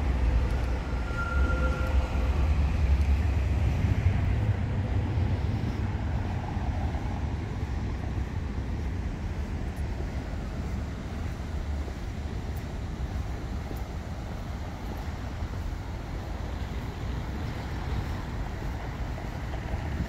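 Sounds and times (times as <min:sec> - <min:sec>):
passing vehicle rumble: 0:00.0 - 0:11.8.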